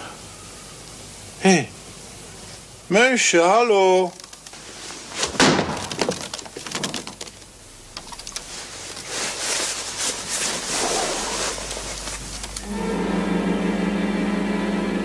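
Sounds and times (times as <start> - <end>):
mouse scratching behind wallpaper: 8.4 - 12.5
music: 12.6 - 15.0.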